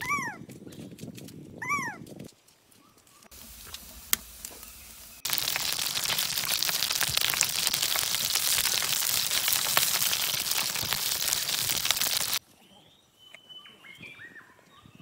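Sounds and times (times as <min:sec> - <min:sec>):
fish sizzling in hot oil: 0:03.3 - 0:12.4
wood fire popping: 0:03.3 - 0:12.4.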